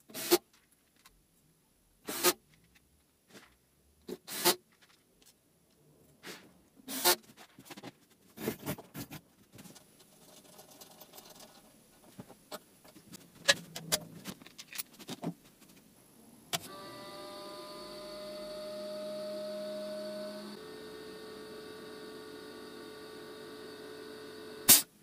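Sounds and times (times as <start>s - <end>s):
compressor humming: 16.6s - 24.8s
cordless drill driving screws: 16.6s - 24.9s.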